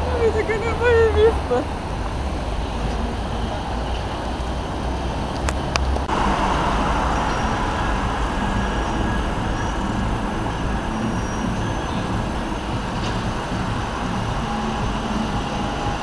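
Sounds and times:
city road traffic: 0.0 - 16.0.

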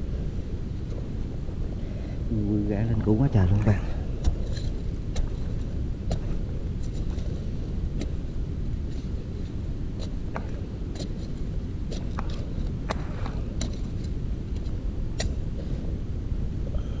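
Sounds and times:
digging tool striking earth: 4.2 - 8.2, 8.8 - 15.4.

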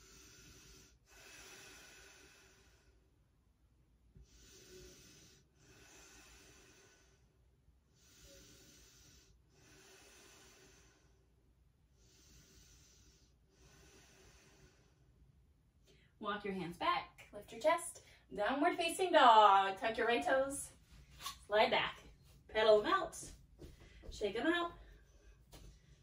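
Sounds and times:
person breathing slowly: 0.0 - 3.1, 4.2 - 15.3.

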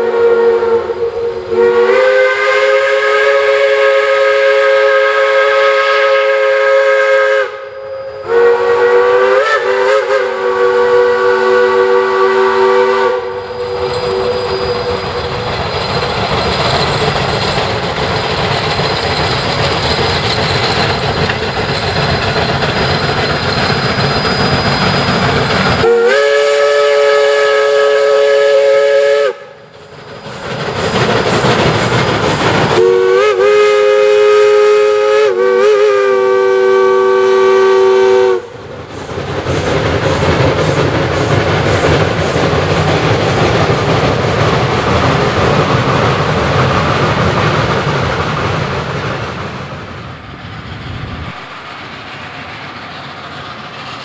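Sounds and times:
steam whistle blasts: 0.0 - 15.3, 24.1 - 29.7, 32.7 - 38.6
train rumble and clatter: 0.0 - 54.0.

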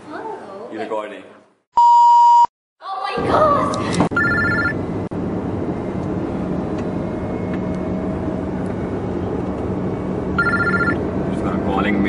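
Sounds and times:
car engine and tyre noise: 5.0 - 12.0.

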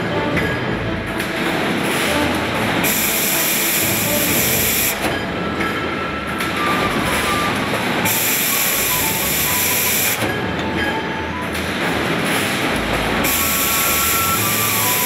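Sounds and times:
dense machinery din: 0.0 - 15.0
loud compressed-air hiss: 2.8 - 5.0, 8.0 - 10.2, 13.2 - 15.0.

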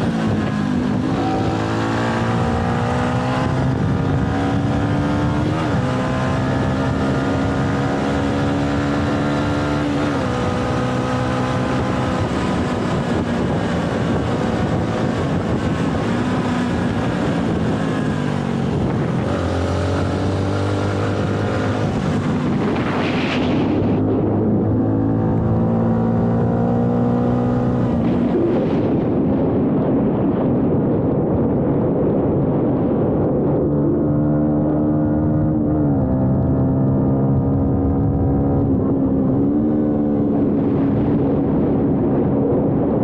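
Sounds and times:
motorcycle engine running: 0.0 - 29.0.

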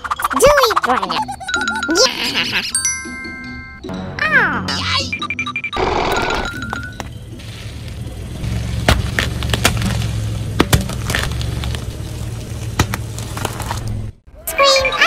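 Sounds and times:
low engine rumble: 6.5 - 14.3.

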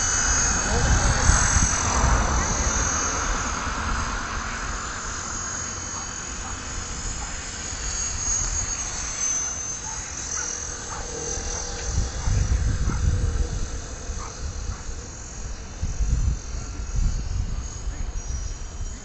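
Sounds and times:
wind rumble on microphone: 0.0 - 5.3, 10.4 - 19.0
model aircraft motor whine: 0.0 - 19.0.

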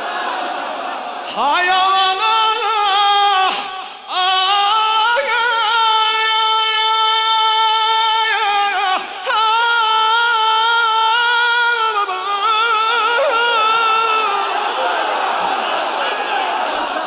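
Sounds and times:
man singing a lament: 1.3 - 15.0.

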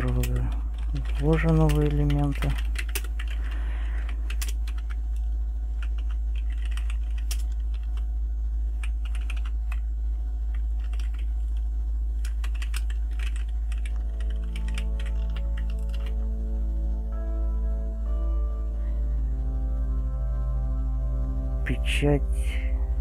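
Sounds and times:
soft background music: 0.0 - 3.9, 12.6 - 23.0
keyboard typing: 0.0 - 8.1, 8.7 - 9.9, 10.5 - 16.3
steady low hum: 0.0 - 23.0.

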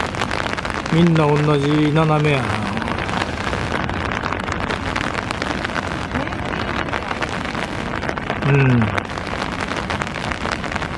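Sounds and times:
person's voice falling sound: 6.1 - 6.7, 8.4 - 9.0.

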